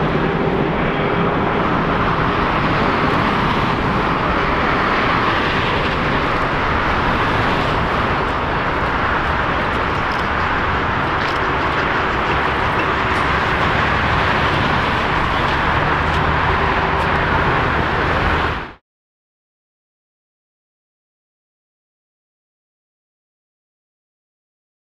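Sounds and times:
loud jet engine roar: 0.0s - 18.8s.

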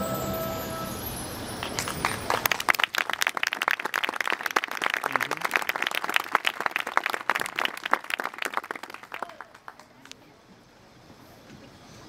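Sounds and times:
crowd applauding: 1.6s - 10.2s.

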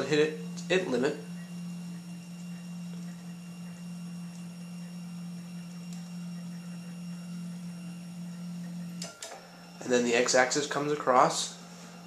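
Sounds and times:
stepper motor humming: 0.0s - 12.0s.

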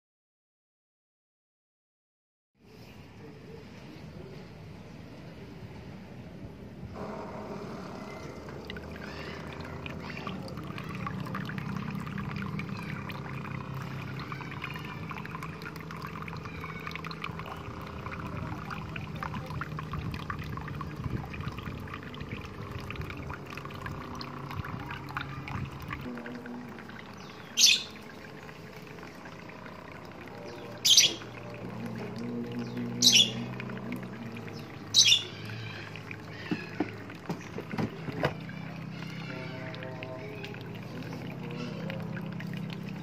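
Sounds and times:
steady low hum: 3.0s - 43.0s
water jetting into plastic tub: 7.0s - 43.0s
bird chirps: 27.2s - 28.0s, 30.5s - 31.3s, 32.6s - 33.5s, 34.6s - 35.5s.

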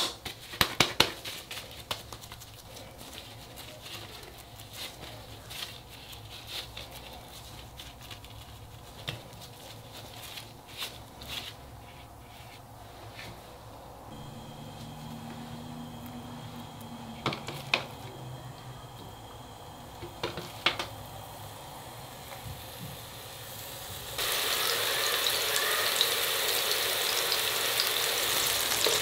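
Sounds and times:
hands patting meat: 0.0s - 3.6s
plastic gloves crinkling: 0.0s - 18.4s.

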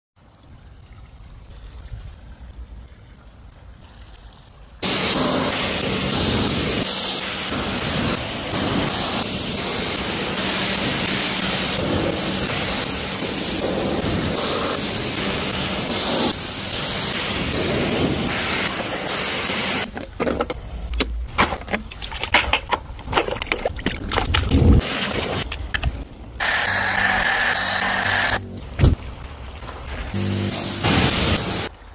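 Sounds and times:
pressure washer jet spraying: 4.8s - 19.9s, 26.4s - 28.6s, 30.2s - 31.7s.

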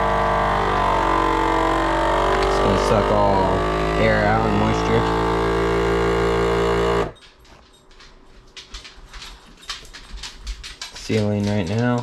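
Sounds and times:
vacuum sealer pump droning: 0.0s - 7.2s.

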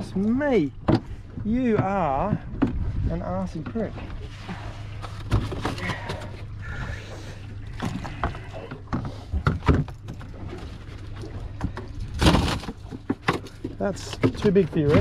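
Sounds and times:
steady low hum: 0.0s - 15.0s
fish and gaff knocking on hull: 0.8s - 2.9s, 7.7s - 10.5s.

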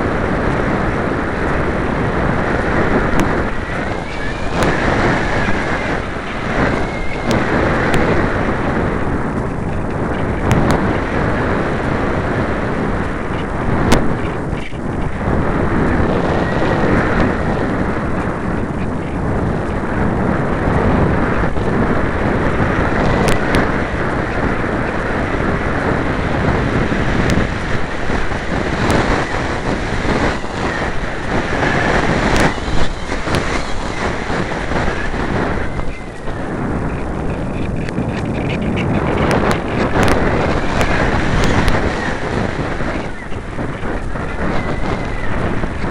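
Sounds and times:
wind buffeting microphone: 0.0s - 45.9s
faint ticks: 2.6s - 8.2s.

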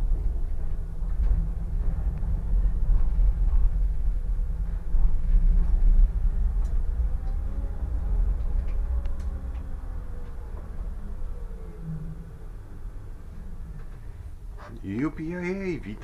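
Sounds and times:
tram wheels rumbling: 0.0s - 16.0s
faint clicks: 8.3s - 10.7s.

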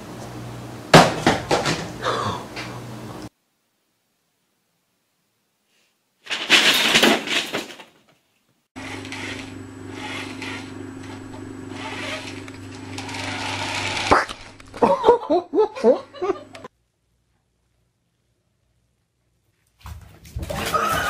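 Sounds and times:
low hum with hiss: 0.0s - 5.6s.

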